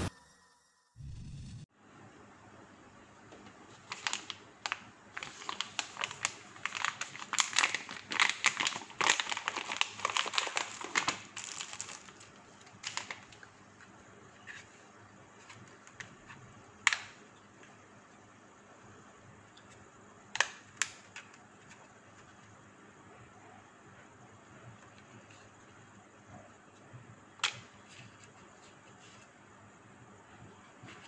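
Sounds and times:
plastic bag crinkling: 3.8 - 13.4.

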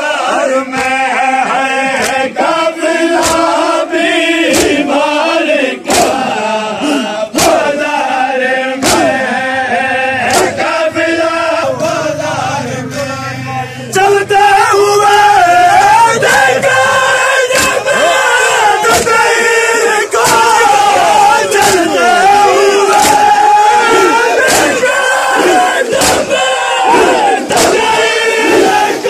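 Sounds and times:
crowd of men chanting: 0.0 - 29.0
hands slapping chests: 0.7 - 1.1, 2.0 - 2.3, 3.1 - 3.6, 4.5 - 4.9, 5.8 - 6.3, 7.4 - 7.7, 8.8 - 9.2, 10.3 - 10.6, 17.5 - 17.9, 18.8 - 19.2, 21.6 - 21.9, 22.9 - 23.3, 24.4 - 24.8, 25.4 - 26.3, 27.5 - 27.9.

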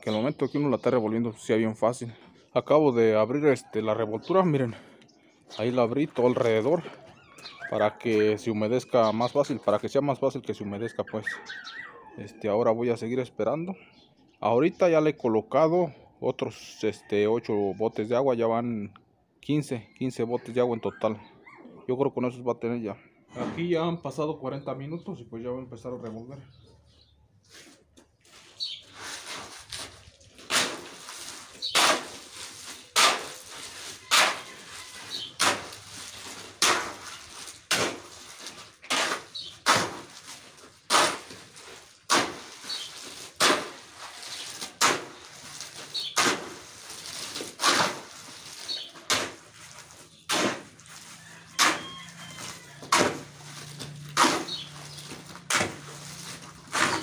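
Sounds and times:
shovel scraping wet concrete: 27.5 - 57.0.

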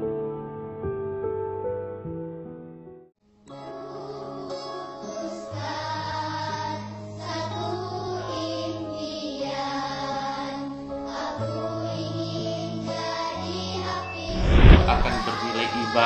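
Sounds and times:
slow background music: 3.3 - 14.3, 15.0 - 16.0
choir-like sung voice: 3.6 - 16.0.

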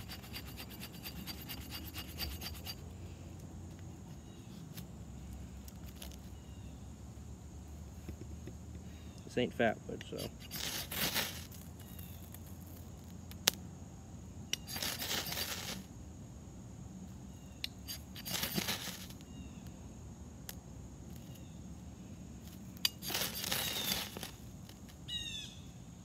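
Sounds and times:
knife scraping ferrocerium rod: 0.0 - 2.8, 10.1 - 11.6, 14.5 - 15.8, 17.6 - 19.1, 22.8 - 24.3.

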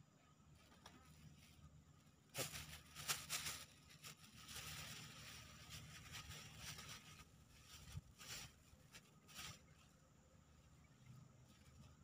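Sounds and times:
plastic bag crinkling: 2.3 - 9.8.

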